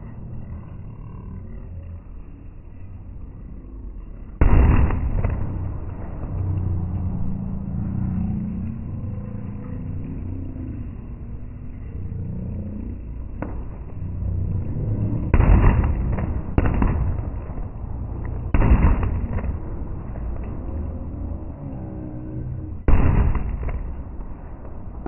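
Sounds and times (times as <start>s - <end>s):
murmur of large crowd: 0.0s - 25.0s
fireworks bursting: 4.4s - 6.5s, 15.1s - 20.7s, 22.7s - 25.0s.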